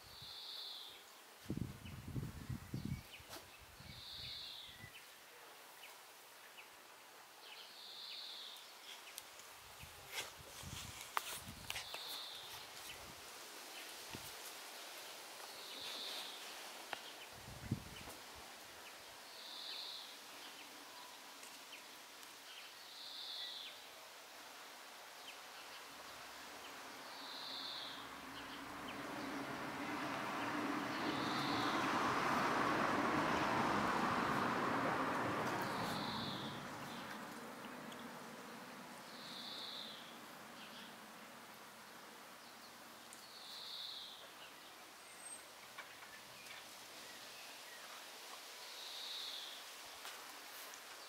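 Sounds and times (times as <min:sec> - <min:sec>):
faint high-pitched hiss: 0:00.0 - 0:51.0
faint light ticks: 0:08.6 - 0:09.5, 0:16.9 - 0:17.1, 0:21.4 - 0:22.4, 0:37.1 - 0:38.1.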